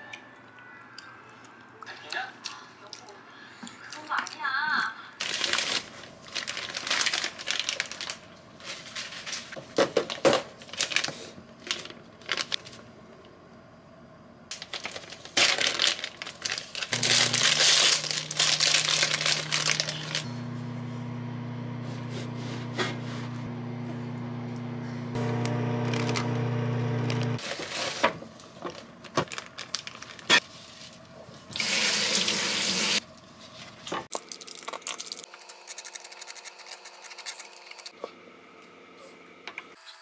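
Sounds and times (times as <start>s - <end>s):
plastic packaging crinkling: 5.2s - 12.8s, 14.5s - 20.3s, 25.7s - 26.4s, 27.1s - 30.9s.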